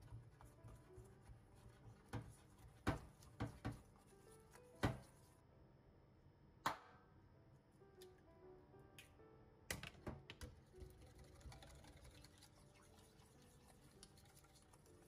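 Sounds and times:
whisk knocking on bowl: 0.0 - 4.0, 4.8 - 5.1.

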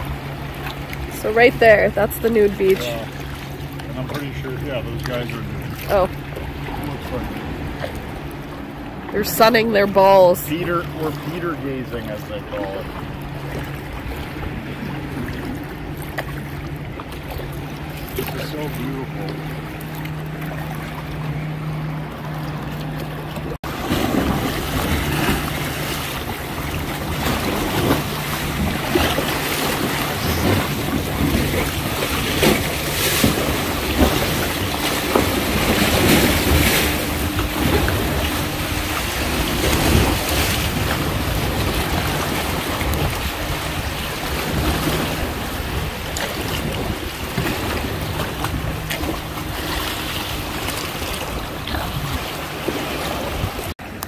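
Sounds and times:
water splashing and lapping: 0.0 - 54.0
wind buffeting microphone: 23.6 - 53.7.

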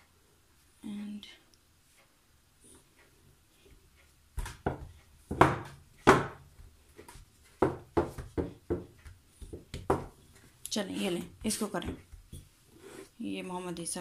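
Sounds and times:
knocks on marble counter: 7.6 - 8.9.

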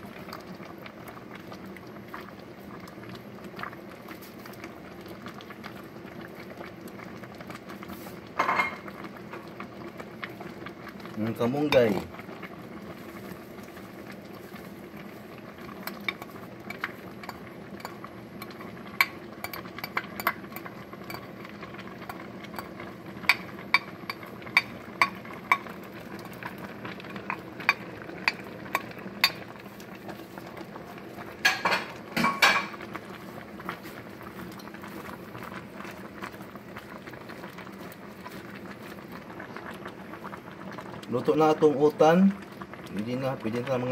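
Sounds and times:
soup bubbling in a pot: 0.0 - 43.9
utensil clinking against metal pot: 22.6 - 25.7.

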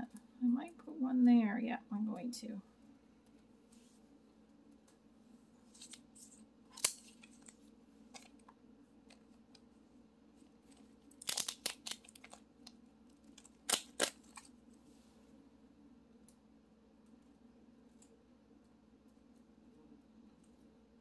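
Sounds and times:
faint steady hum: 0.0 - 21.0
paper crinkling and crackling: 5.6 - 9.6, 10.4 - 14.6.

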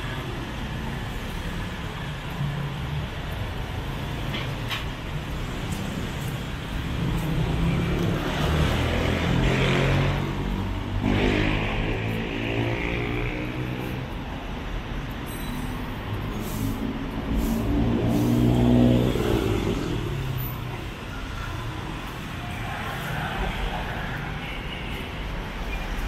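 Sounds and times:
road traffic passing: 0.0 - 26.0
vehicle engine passing by: 6.0 - 14.0, 17.1 - 20.4.

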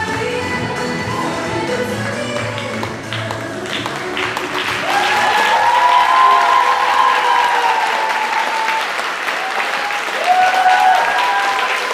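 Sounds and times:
audience applauding: 2.3 - 11.9
high cheers: 4.5 - 11.9.

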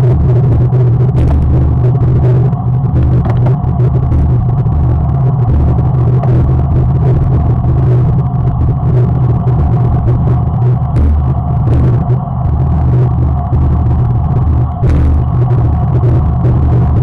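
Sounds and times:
wind and road rumble: 0.0 - 17.0.

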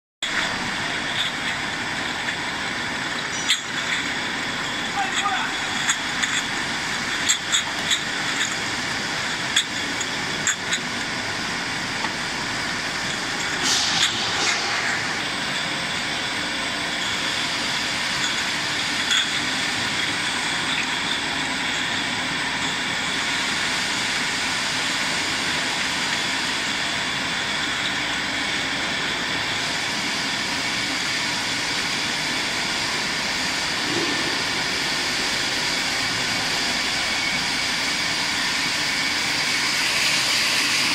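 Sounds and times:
conveyor machinery running: 0.2 - 40.9.

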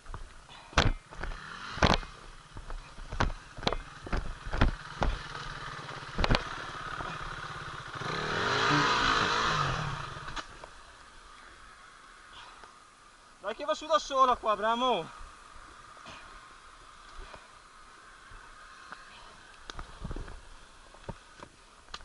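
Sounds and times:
motorcycle engine running: 0.0 - 10.7
sharp knocks and clatter: 0.8 - 5.4, 6.0 - 6.5.

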